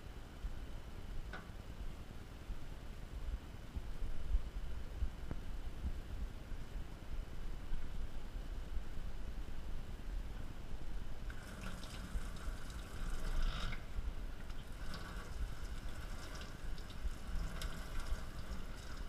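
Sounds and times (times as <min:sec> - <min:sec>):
water spraying into steel sink: 0:11.3 - 0:19.0.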